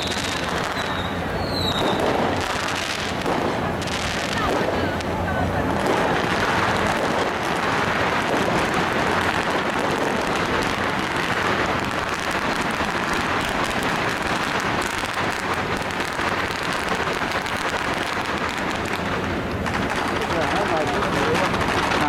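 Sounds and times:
firecrackers crackling: 0:00.0 - 0:22.0.

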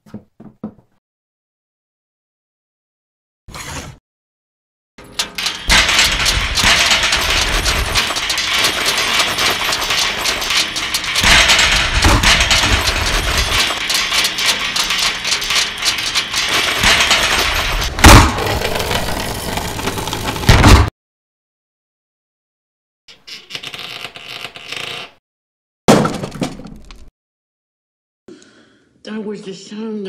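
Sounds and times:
metal tool chest tumbling down stairs: 0:05.0 - 0:20.9
loud crash: 0:05.4 - 0:20.9.

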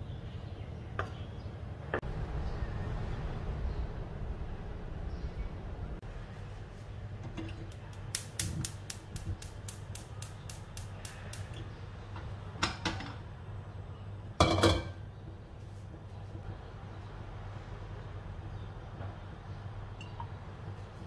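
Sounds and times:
gas igniter ticking: 0:07.6 - 0:11.7
wok clunking on metal support: 0:12.2 - 0:13.2, 0:14.4 - 0:15.1.

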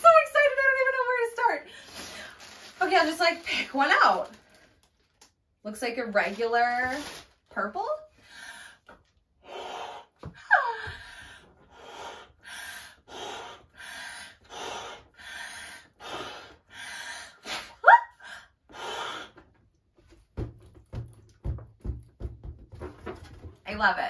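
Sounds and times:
breaths blowing up balloon: 0:08.2 - 0:19.5
soft low knocks on balloon: 0:20.1 - 0:23.6.

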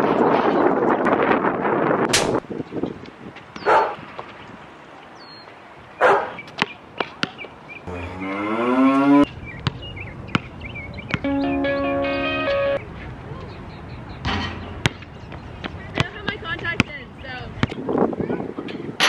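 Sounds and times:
wind buffeting microphone: 0:00.0 - 0:06.0, 0:08.9 - 0:19.0
rising vocal call: 0:07.9 - 0:09.3
basketball bouncing: 0:11.1 - 0:11.3, 0:14.3 - 0:15.1.

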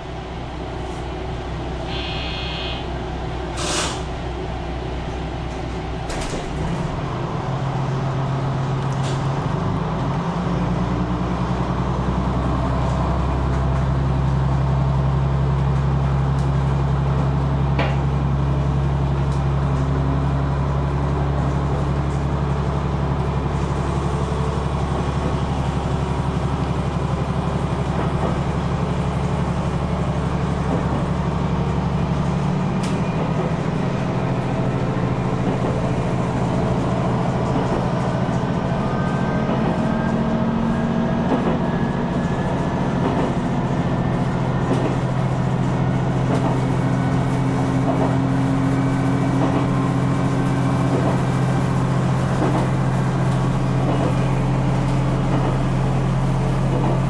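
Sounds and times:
diesel railcar engine drone: 0:00.0 - 0:57.0
wheels on rail: 0:11.4 - 0:57.0.

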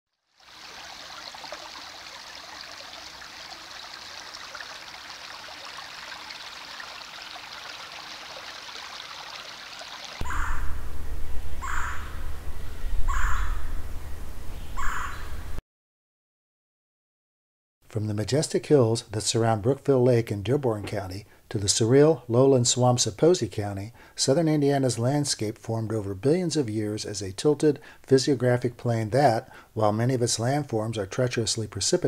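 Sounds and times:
water trickling: 0:00.2 - 0:10.3
bird calling: 0:09.2 - 0:15.6
low rumble: 0:10.2 - 0:14.7.

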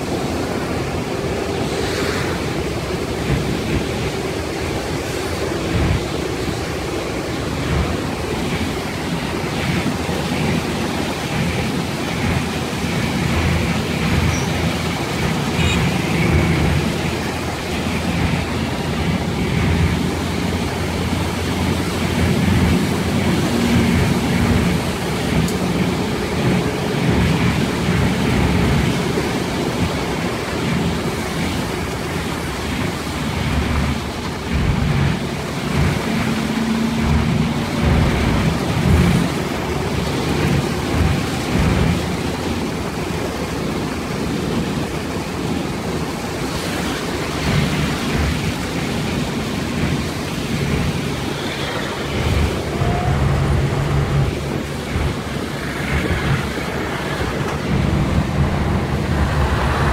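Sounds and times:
car engine running: 0:00.0 - 0:46.0
tyres on wet road: 0:00.0 - 0:59.9.

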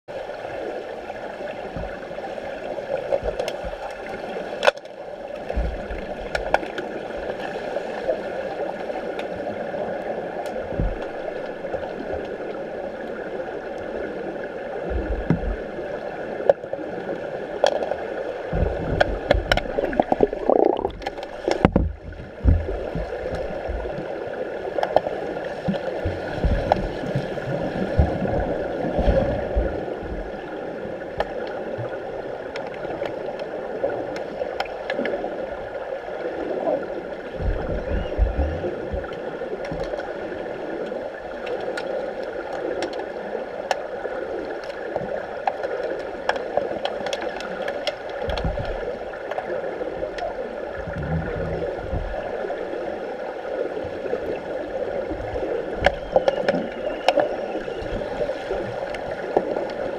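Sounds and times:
rumbling water surges: 0:00.1 - 0:59.9
muffled underwater noise: 0:00.3 - 0:59.9
sharp clicks underwater: 0:03.0 - 0:07.4, 0:17.6 - 0:24.0, 0:24.7 - 0:27.3, 0:34.1 - 0:35.2, 0:40.8 - 0:49.5, 0:50.1 - 0:52.2, 0:55.3 - 0:59.9.

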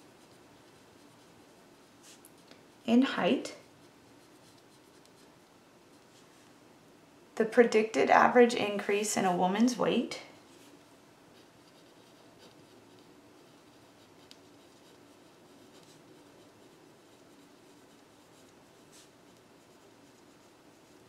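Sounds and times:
pencil scratching on paper: 0:00.0 - 0:02.4, 0:03.3 - 0:05.4, 0:11.3 - 0:21.0.

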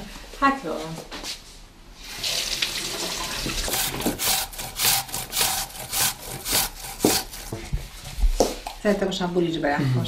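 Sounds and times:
water running from tap: 0:02.1 - 0:04.0
apple grating on grater: 0:03.6 - 0:08.1.

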